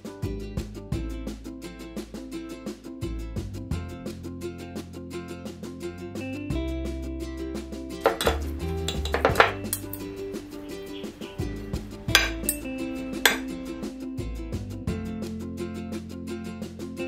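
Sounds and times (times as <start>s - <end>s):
forks clinking on glass dish: 8.0s - 10.0s, 12.2s - 12.6s.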